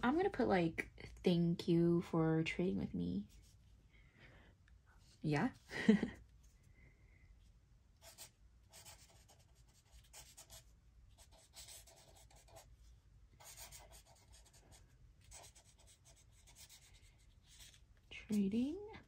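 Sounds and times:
pen scratching on paper: 0:08.0 - 0:12.7, 0:13.4 - 0:18.5.

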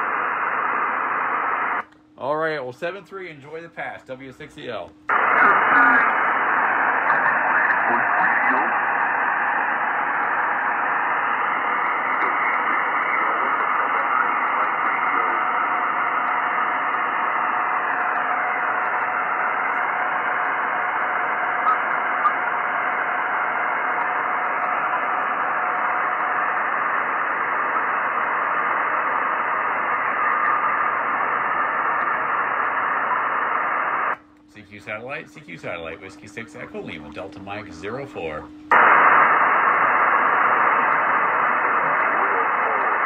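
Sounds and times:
radio receiver hiss: 0:00.0 - 0:43.0.

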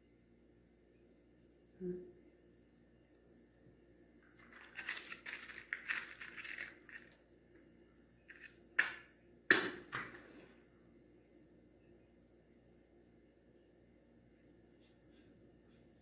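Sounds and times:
matchbox rattling: 0:04.3 - 0:07.2.

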